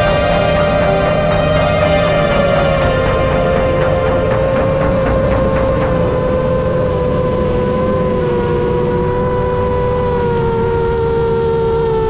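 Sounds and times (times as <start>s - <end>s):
wind rush: 0.0s - 12.0s
quadcopter motors whining: 7.8s - 12.0s.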